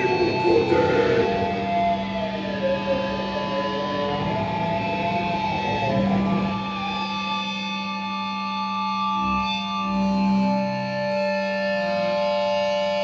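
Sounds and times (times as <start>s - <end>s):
steady low drone: 0.0s - 7.1s
wavering electric guitar notes: 0.0s - 8.2s.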